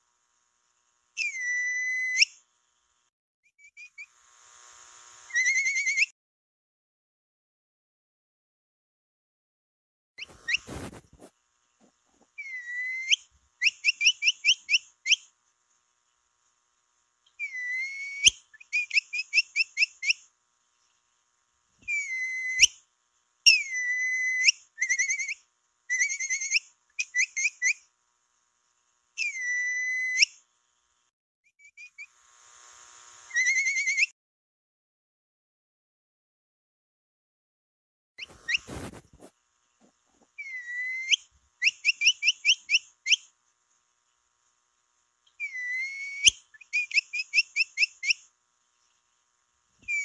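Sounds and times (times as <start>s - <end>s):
capybara whistling and chirping: 1.2s - 2.3s, 5.3s - 6.1s, 12.4s - 15.2s, 17.4s - 20.2s, 21.8s - 22.8s, 23.5s - 27.8s, 29.2s - 30.4s, 33.3s - 34.1s, 38.2s - 39.0s, 40.4s - 43.2s, 45.4s - 48.2s.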